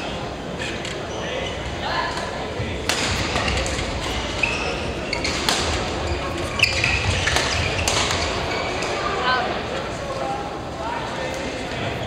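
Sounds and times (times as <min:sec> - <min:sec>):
rackets hitting shuttlecock: 0:02.8 - 0:04.2, 0:05.2 - 0:08.9
shoes squeaking on floor: 0:04.1 - 0:09.0.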